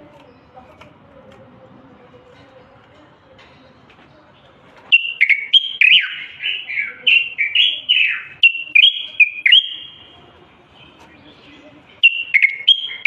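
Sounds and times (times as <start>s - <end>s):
bird singing whistled notes: 4.9s - 10.2s, 12.0s - 13.0s.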